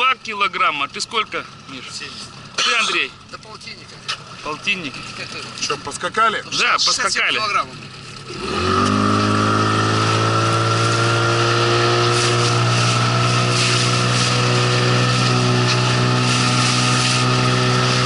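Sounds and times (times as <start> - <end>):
outboard motor at full throttle: 0.0 - 18.0
wind: 0.0 - 18.0
water hiss: 11.8 - 18.0.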